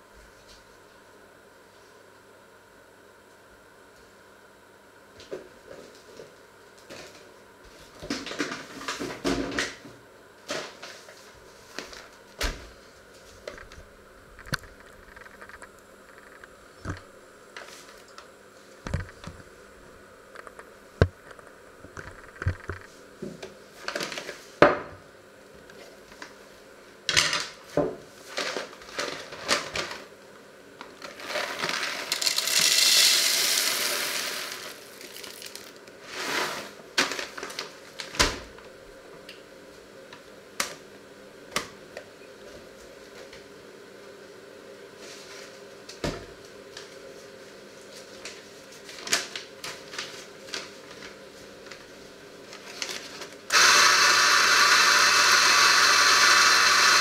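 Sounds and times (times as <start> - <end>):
coffee beans poured into grinder: 31.0 - 36.7, 53.5 - 57.0.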